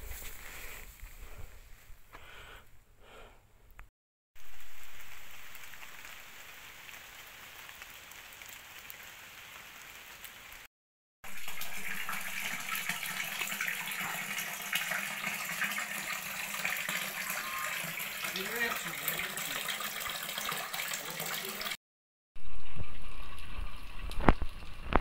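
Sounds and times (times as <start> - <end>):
fountain water splashing into basin: 11.2 - 21.8, 22.4 - 25.0.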